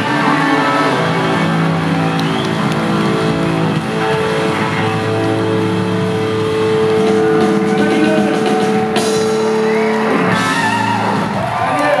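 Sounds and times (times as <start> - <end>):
crowd cheering: 0.0 - 12.0
rock band holding a chord: 0.0 - 12.0.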